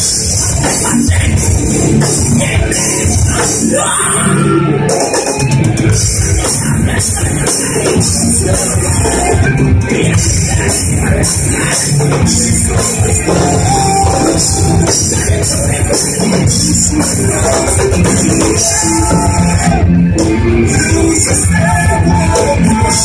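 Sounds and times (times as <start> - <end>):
metalcore band playing live: 0.0 - 23.0.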